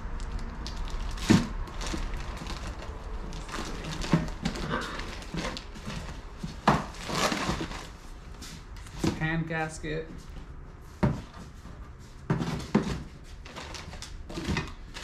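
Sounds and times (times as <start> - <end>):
plastic packaging crinkling: 0.2 - 8.0, 13.4 - 15.0.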